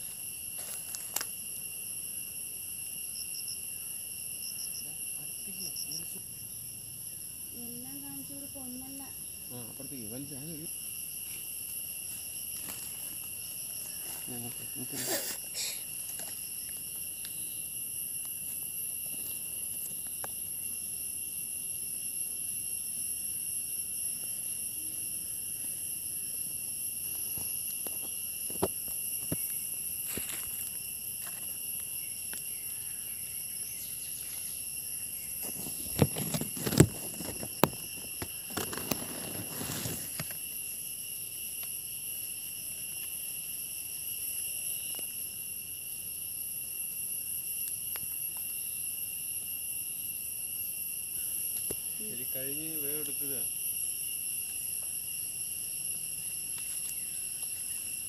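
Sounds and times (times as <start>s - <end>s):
insect chorus: 0.0s - 58.0s.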